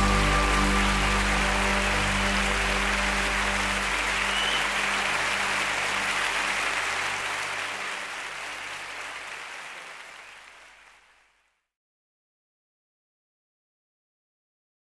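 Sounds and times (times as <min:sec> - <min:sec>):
held notes of a song: 0:00.0 - 0:05.4
audience applause: 0:00.0 - 0:11.4.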